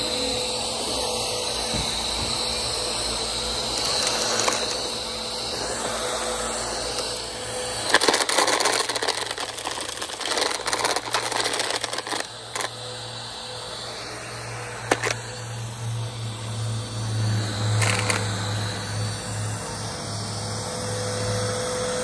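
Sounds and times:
vacuum cleaner running: 0.0s - 22.0s
dirt and stones rattling: 7.9s - 12.7s.

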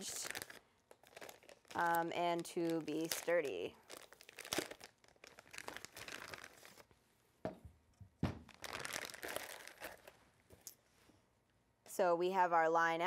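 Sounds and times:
plastic bag crinkling: 0.0s - 6.9s, 8.4s - 10.2s.

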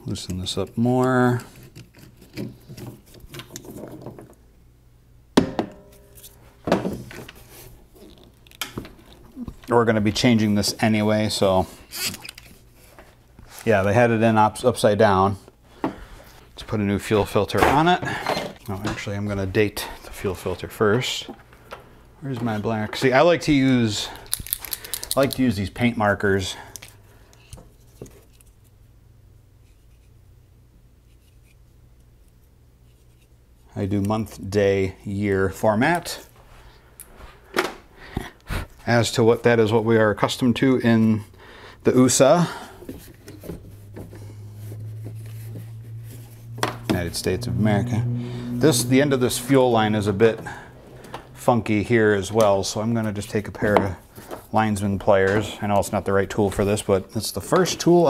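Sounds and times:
parts being handled: 0.1s - 4.5s, 5.4s - 13.9s, 15.5s - 28.9s, 40.6s - 47.4s, 48.6s - 58.0s.

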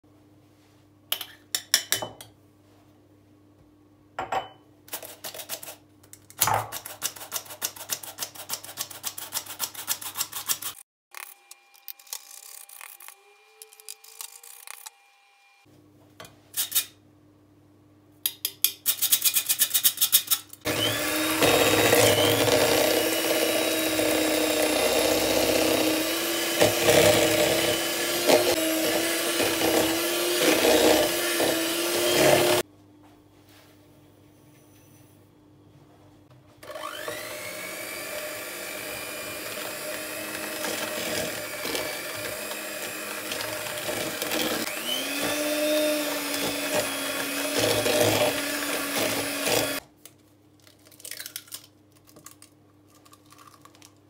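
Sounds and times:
electric hand mixer running: 20.7s - 32.6s, 36.6s - 49.8s.

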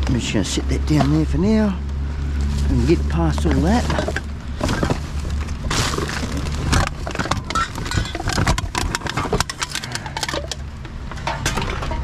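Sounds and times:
steady low hum: 0.0s - 12.0s
plastic bags rustling: 2.4s - 9.8s
bottles and cans clinking: 3.3s - 5.1s, 5.8s - 10.6s.

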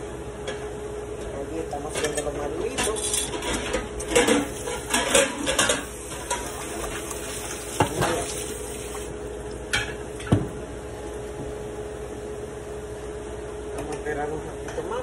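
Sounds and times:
plantain sizzling in oil: 4.4s - 9.5s.

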